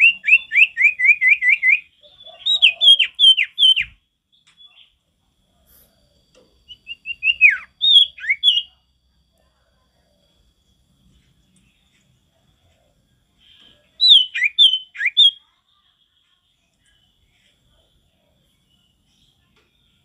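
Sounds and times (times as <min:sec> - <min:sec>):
bird singing whistled notes: 0:00.0 - 0:05.0, 0:06.4 - 0:08.8, 0:13.3 - 0:17.3.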